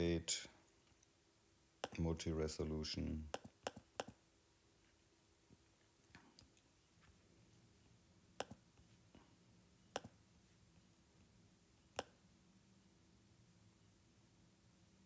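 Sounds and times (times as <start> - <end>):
stylus tapping on tablet screen: 3.3 - 4.2, 8.4 - 8.6, 10.0 - 10.2, 12.0 - 12.2.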